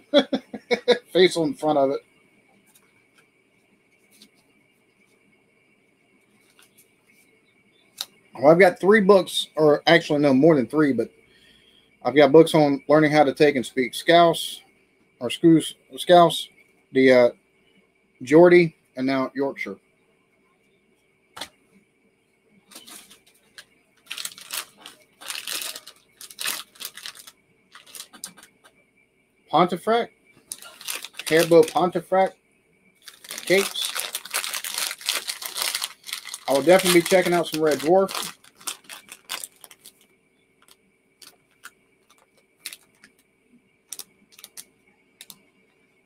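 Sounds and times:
steady low hum: 0.0 - 46.0
plastic packet crinkling: 22.7 - 28.6, 30.4 - 32.0, 33.0 - 43.2, 43.9 - 45.4.

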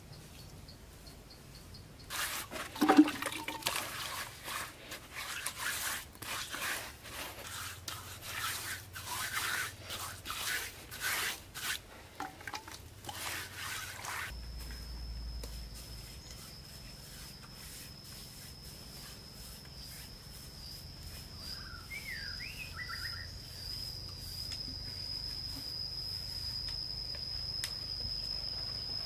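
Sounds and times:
hand smoothing wet mud: 2.1 - 11.9, 13.0 - 14.3, 15.5 - 21.5.

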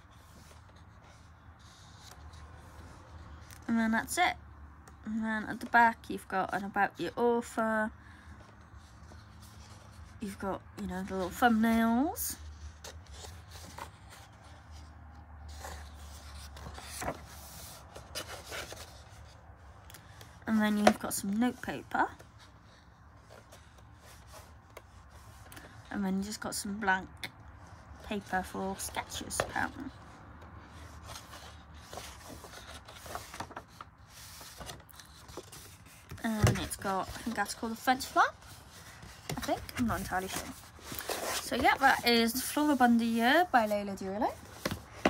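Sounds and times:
paper pages rustling: 0.0 - 3.7, 11.0 - 25.8, 27.8 - 45.0.

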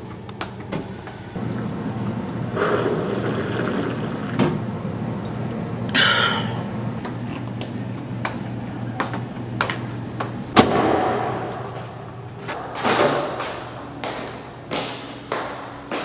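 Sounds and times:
steady low hum: 0.0 - 16.0
footsteps on tiled floor: 7.0 - 10.5, 11.7 - 16.0.

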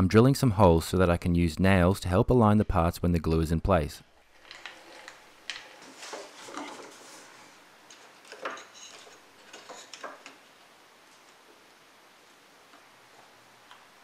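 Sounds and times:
wooden box being handled: 4.7 - 10.4.

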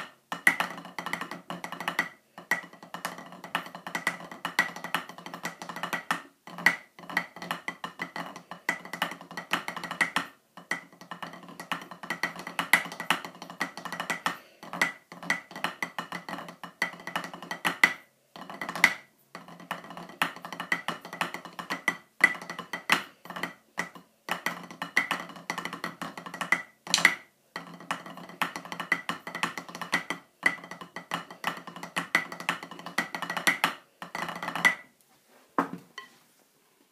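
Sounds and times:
drumsticks on practice pad: 26.9 - 27.3.

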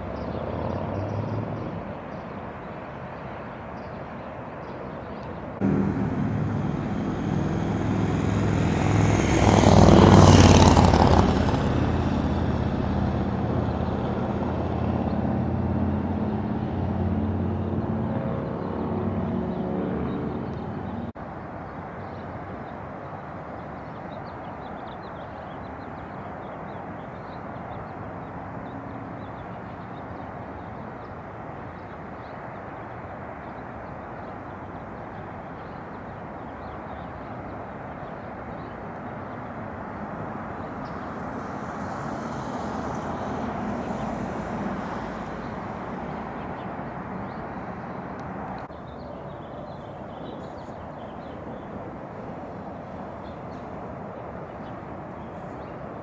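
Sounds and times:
outdoor background: 0.0 - 56.0
motor vehicle passing: 5.6 - 21.1, 39.8 - 48.7.

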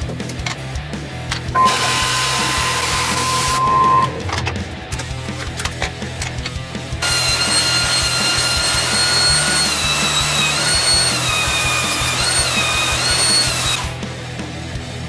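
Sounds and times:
music with steady beat: 0.0 - 10.2
belt sander sanding wood: 7.0 - 13.9.

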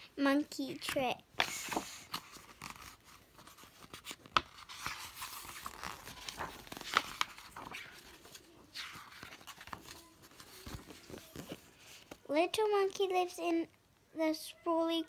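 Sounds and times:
book pages rustling and flipping: 0.4 - 13.6.

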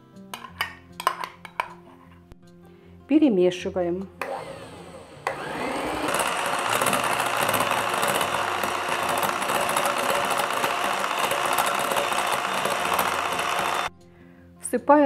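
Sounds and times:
electric hand mixer whisking: 4.2 - 13.9.

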